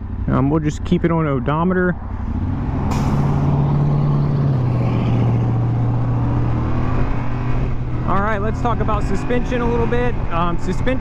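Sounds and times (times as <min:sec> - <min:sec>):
motorcycle engine running: 0:00.0 - 0:02.3.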